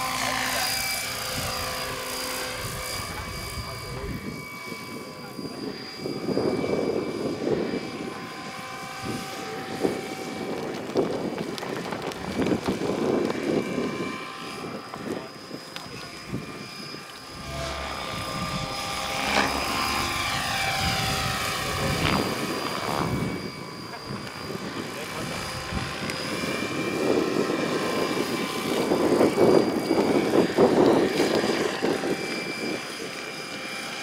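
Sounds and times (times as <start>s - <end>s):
electric motor whine: 0.0s - 34.0s
rotor blades rushing: 0.0s - 34.0s.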